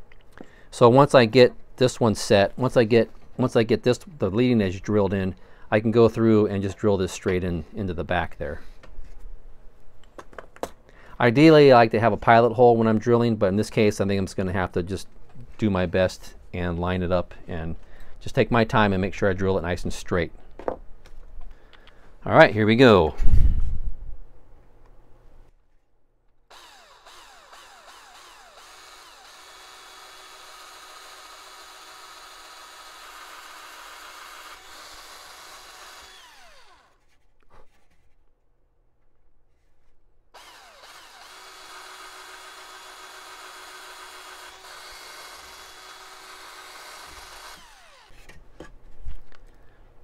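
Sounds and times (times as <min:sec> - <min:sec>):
cordless drill drilling wood: 0:26.5 - 0:37.0, 0:40.4 - 0:48.2.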